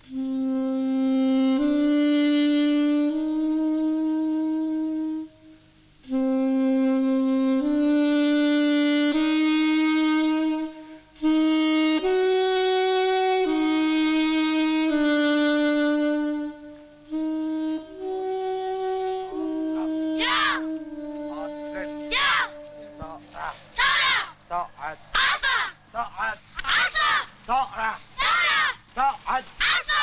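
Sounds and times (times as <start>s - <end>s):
solo wind instrument melody: 0.0s - 23.6s.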